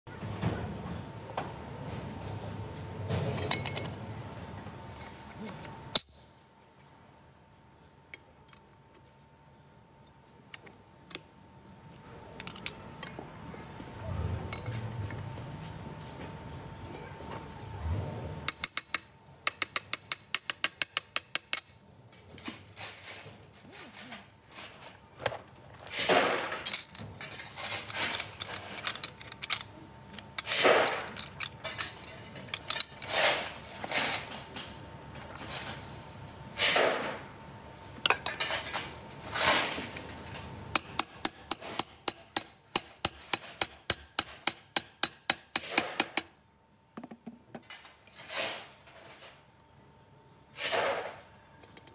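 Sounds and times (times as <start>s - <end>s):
hammer tapping metal: 18.5s - 21.8s, 40.8s - 46.3s
metal clunks and scrapes: 30.4s - 36.0s, 50.6s - 51.9s.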